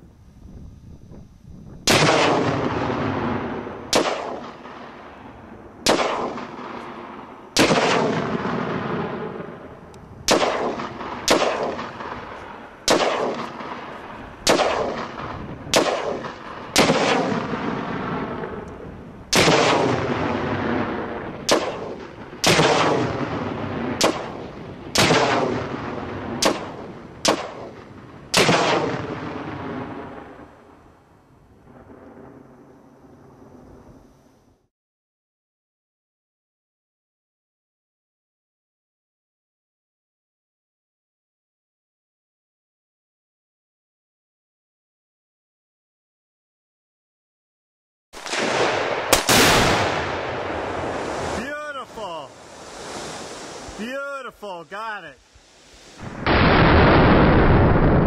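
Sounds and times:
explosive target bangs rumbling: 1.7 - 4.9, 5.8 - 30.5, 56.0 - 58.0
rifle shots: 1.9 - 5.2, 5.8 - 30.5, 48.2 - 52.3.

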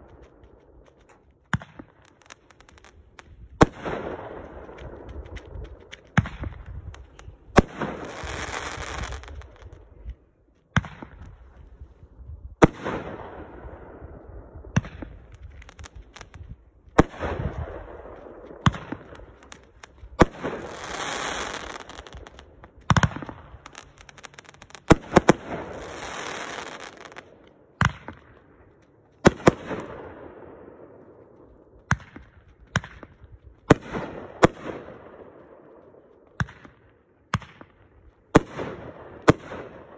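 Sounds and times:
crackling star hiss: 1.9 - 3.6, 4.3 - 9.9, 15.1 - 16.6, 17.6 - 27.6.

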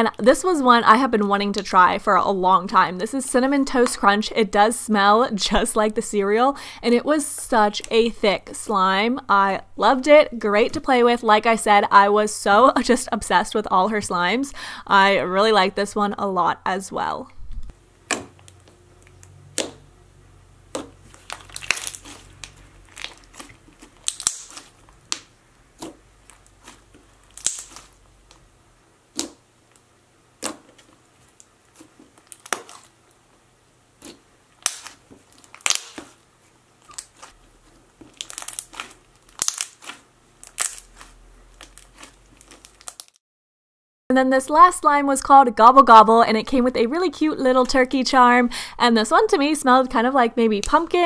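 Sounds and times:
slime clicking and popping: 18.1 - 19.8, 20.7 - 26.0, 27.2 - 28.4, 29.1 - 29.4, 32.3 - 32.9, 34.0 - 36.2, 38.0 - 43.2.

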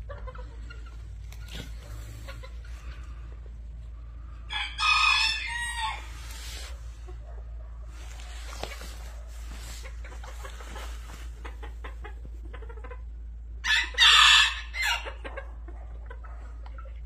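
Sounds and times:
hens clucking softly: 0.0 - 14.0, 14.6 - 17.0
rooster crowing: 4.5 - 6.3, 13.6 - 15.0.

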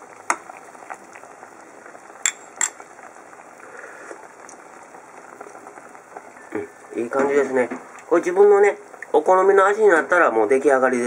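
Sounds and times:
broth bubbling in a pot: 0.0 - 11.0.

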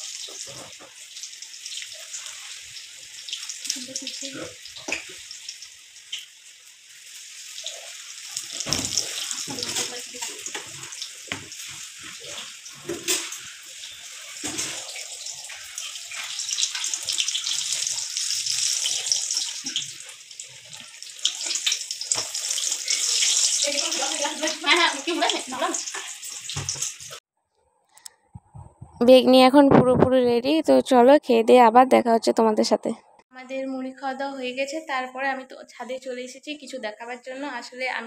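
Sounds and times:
frying in hot oil: 0.0 - 27.2.

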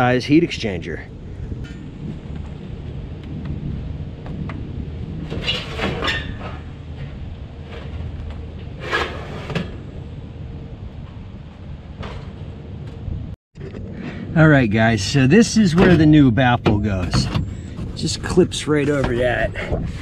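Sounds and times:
steady low rumble: 0.0 - 20.0
sheet metal clanks and scrapes: 5.2 - 9.9.

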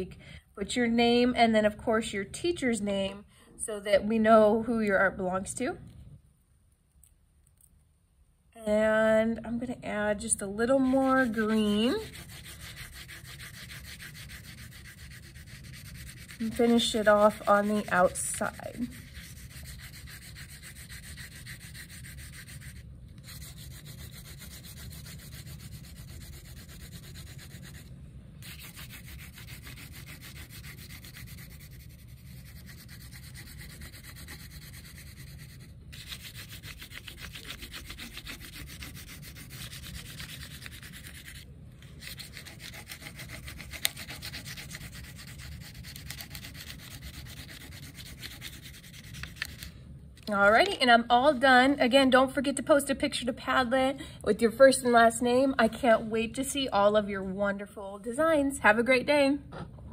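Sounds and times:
crayon rubbing on paper: 10.9 - 41.4, 42.0 - 49.7.

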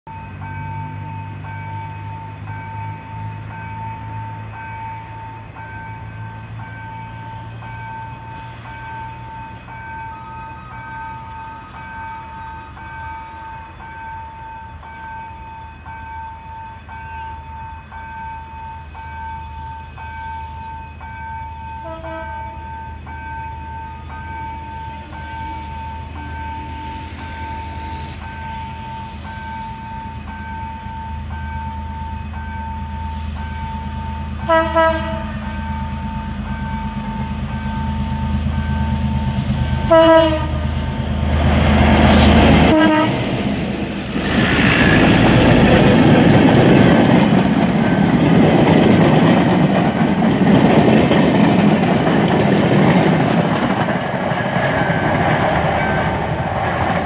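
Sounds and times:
level crossing warning bell: 0.1 - 41.2
locomotive engine rumble: 0.1 - 57.0
train horn blast: 21.8 - 22.8, 34.4 - 35.7, 39.8 - 40.9, 42.1 - 43.4.

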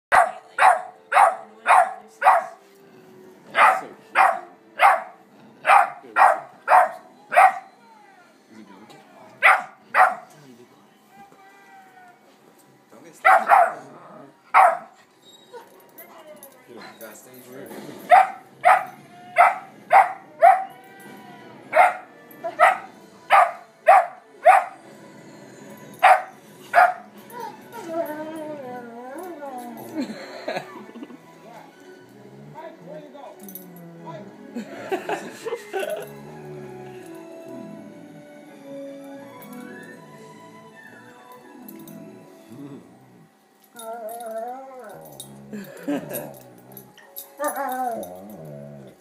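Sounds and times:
dog barking: 0.1 - 2.6, 3.6 - 7.7, 9.4 - 10.3, 13.2 - 13.9, 14.5 - 15.0, 18.1 - 20.7, 21.8 - 24.8, 26.0 - 27.1.

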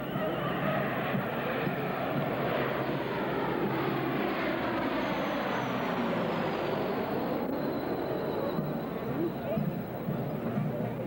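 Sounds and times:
aircraft engine drone: 0.0 - 11.0
faint high whine: 4.7 - 11.0.

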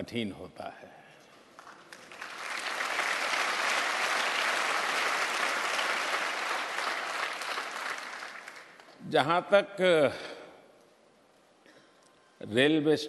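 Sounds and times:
audience applauding: 1.6 - 9.0.

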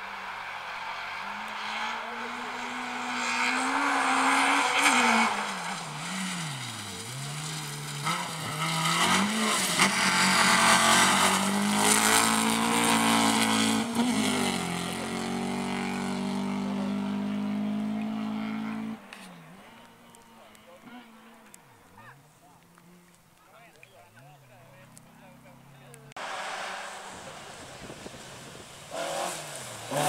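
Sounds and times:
rally car engine revving: 0.0 - 23.2, 24.4 - 30.0
gravel spraying under tyres: 4.4 - 14.7, 26.2 - 30.0.

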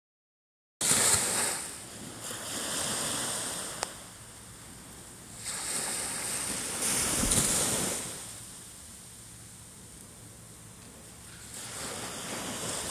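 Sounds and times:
small waves washing on sand: 0.8 - 4.2, 4.8 - 9.0, 10.9 - 12.9.

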